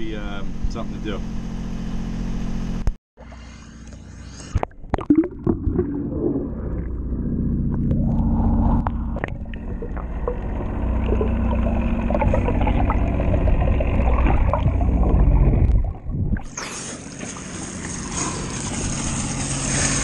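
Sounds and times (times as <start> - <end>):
steady hum: 2.8 - 19.9
muffled underwater rumble: 3.2 - 16.6
faint water gurgling: 3.2 - 19.2.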